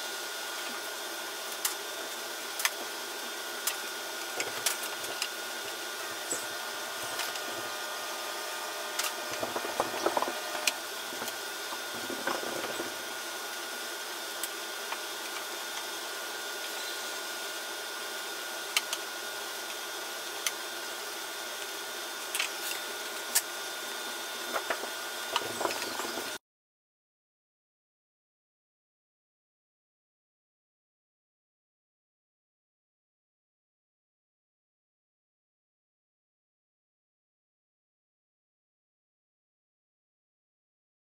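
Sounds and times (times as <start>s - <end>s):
steady background hum: 0.0s - 26.4s.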